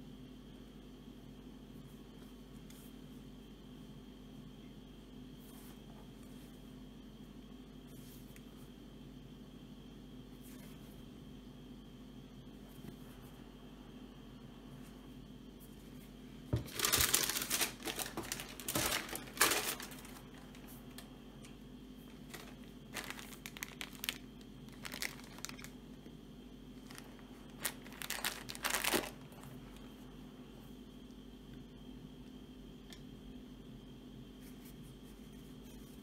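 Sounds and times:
tissue paper crinkling: 0:16.6 - 0:21.1, 0:22.1 - 0:25.8, 0:26.8 - 0:29.8.

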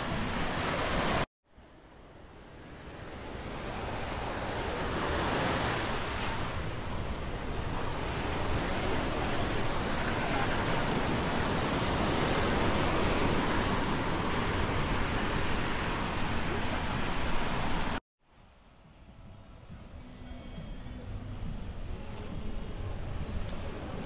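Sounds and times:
small waves washing on sand: 0:02.8 - 0:18.0.

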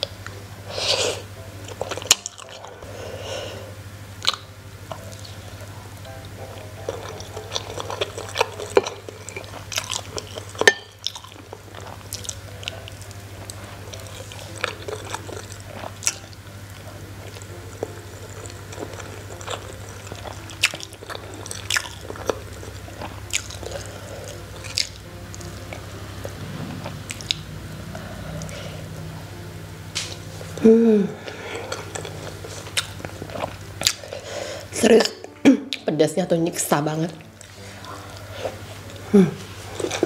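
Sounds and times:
steady low hum: 0:00.0 - 0:40.0
chewing and biting rice ball: 0:06.5 - 0:29.2, 0:31.6 - 0:34.3.

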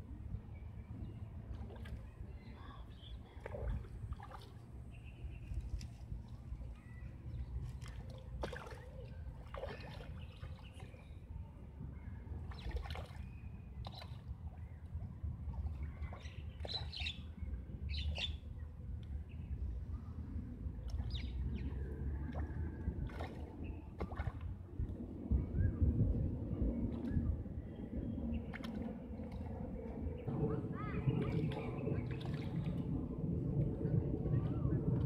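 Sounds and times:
low steady rumble: 0:00.0 - 0:35.0
fish splashing at water surface: 0:22.3 - 0:24.4.

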